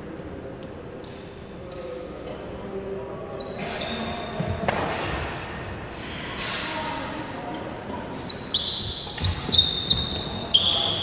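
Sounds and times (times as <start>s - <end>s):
footsteps on court floor: 8.8s - 10.8s.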